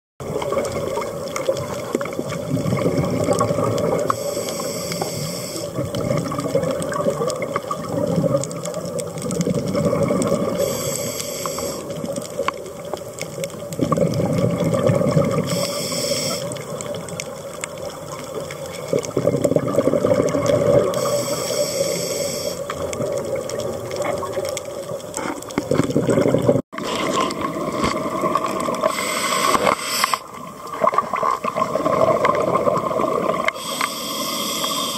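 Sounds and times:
exhaled bubbles rumbling underwater: 0.2s - 34.9s
regulator inhalation hiss: 4.1s - 5.8s, 10.6s - 12.0s, 15.5s - 16.6s, 21.0s - 22.7s, 28.8s - 30.3s, 33.5s - 34.9s.

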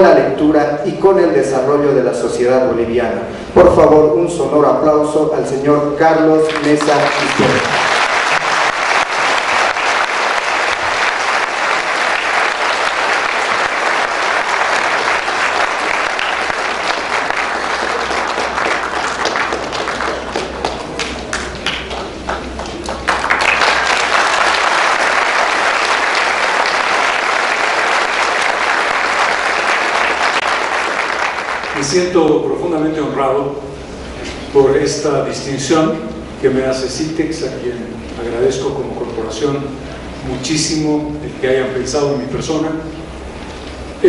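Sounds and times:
audience applauding: 6.4s - 32.2s.

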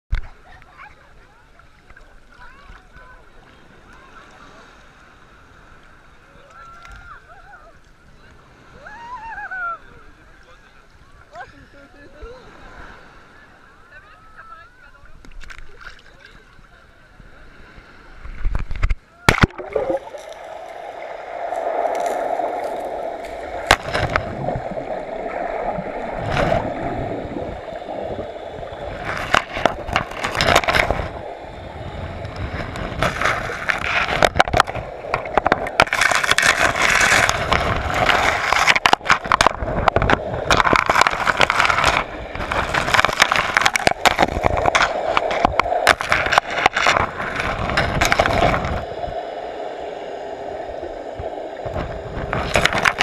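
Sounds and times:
underwater water sloshing: 12.4s - 53.0s.

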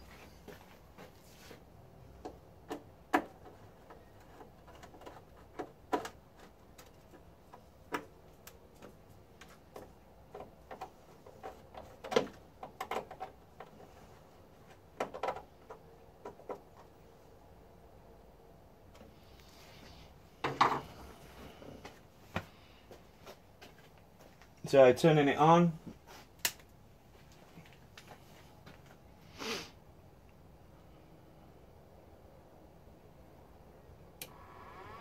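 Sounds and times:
clicks and knocks on plastic casing: 2.2s - 13.9s, 14.7s - 16.9s.

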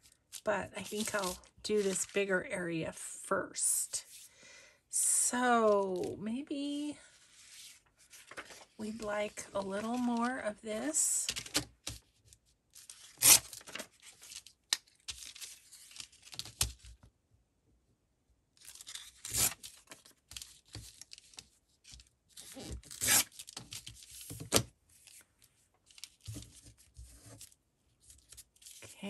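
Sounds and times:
paper rustling: 0.3s - 2.2s, 7.2s - 10.4s, 12.8s - 16.8s, 18.6s - 29.0s
paper tearing: 13.0s - 14.4s, 18.7s - 19.9s, 22.4s - 23.6s.

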